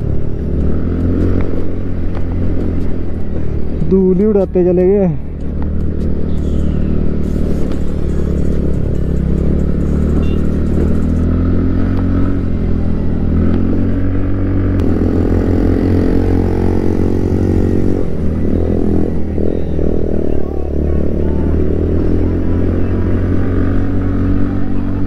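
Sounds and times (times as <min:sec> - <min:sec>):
low road rumble: 0:00.0 - 0:25.0
scooter engine running: 0:05.4 - 0:11.4, 0:14.8 - 0:25.0.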